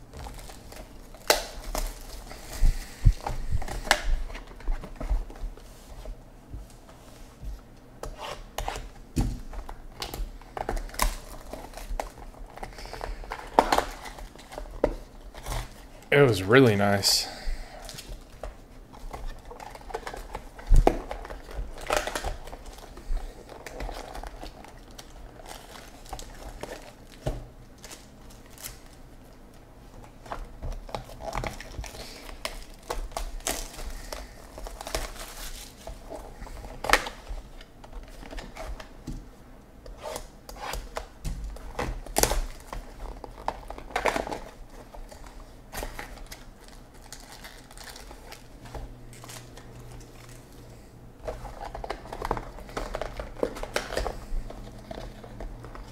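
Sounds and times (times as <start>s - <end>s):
plastic wrapping crinkling: 0.0s - 6.1s, 8.2s - 17.0s, 17.8s - 39.1s, 39.9s - 55.9s.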